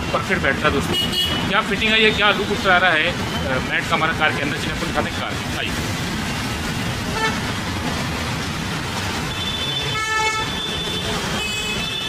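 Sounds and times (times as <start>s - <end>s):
street traffic noise: 0.0s - 12.0s
vehicle horn toot: 0.9s - 1.5s, 9.3s - 12.0s.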